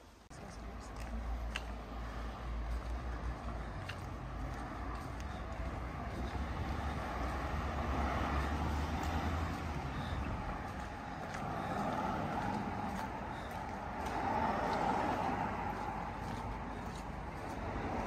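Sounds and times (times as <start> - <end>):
low engine rumble: 0.1 - 18.0
passing cars tyre noise: 0.8 - 18.0.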